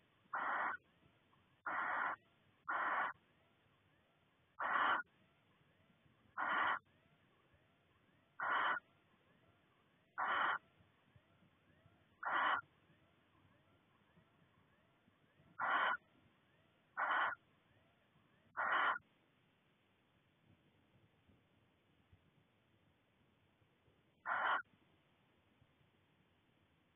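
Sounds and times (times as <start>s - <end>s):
owl rasping hiss calls: 0.3s - 0.8s, 1.6s - 3.2s, 4.6s - 5.1s, 6.4s - 6.8s, 8.4s - 8.8s, 10.1s - 10.6s, 12.2s - 12.7s, 15.6s - 16.0s, 17.0s - 17.4s, 18.5s - 19.0s, 24.2s - 24.7s.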